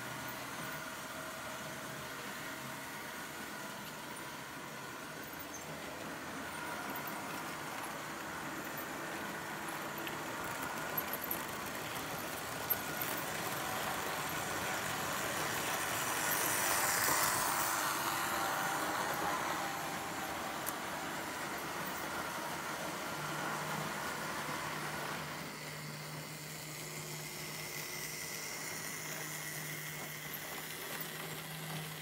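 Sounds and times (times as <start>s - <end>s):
model train wheels rolling: 0.0s - 32.0s
electric motor whine: 15.6s - 32.0s.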